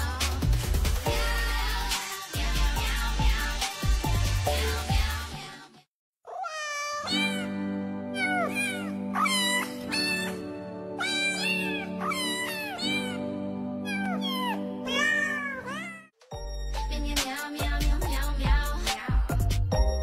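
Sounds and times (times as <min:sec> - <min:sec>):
cat meowing: 0:06.3 - 0:16.1.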